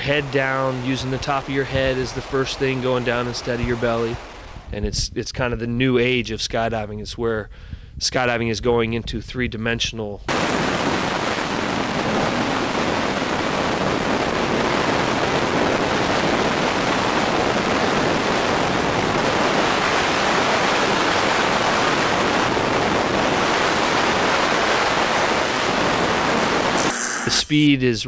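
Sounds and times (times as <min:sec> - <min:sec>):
freefall wind on microphone: 0:00.0 - 0:05.2, 0:10.3 - 0:26.8.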